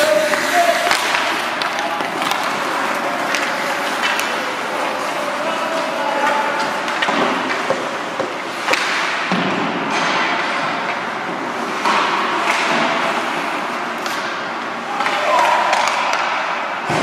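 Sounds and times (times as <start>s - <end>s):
hockey sticks and puck knocking: 0.0s - 5.1s, 6.5s - 11.1s, 11.7s - 13.1s, 15.0s - 17.0s
skating and arena noise: 0.0s - 17.0s.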